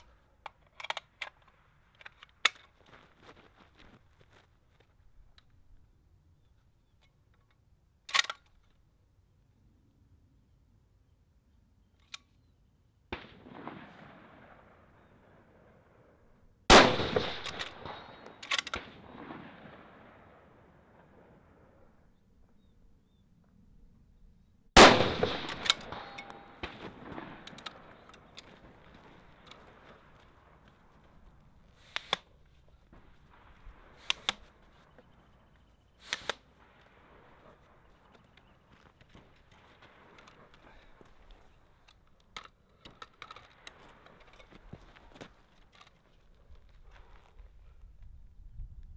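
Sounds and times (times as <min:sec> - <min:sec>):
rifle shot echoing: 0:13.1 - 0:21.9, 0:24.8 - 0:32.2
sharp metallic clicks: 0:24.8 - 0:30.8, 0:33.9 - 0:36.7
tripod legs clicking: 0:31.7 - 0:32.8, 0:34.0 - 0:35.0, 0:36.0 - 0:36.5.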